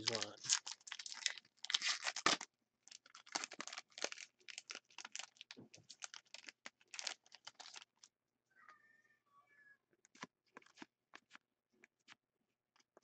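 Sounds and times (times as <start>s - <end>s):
wrapper crinkling and tearing: 0.0s - 8.1s.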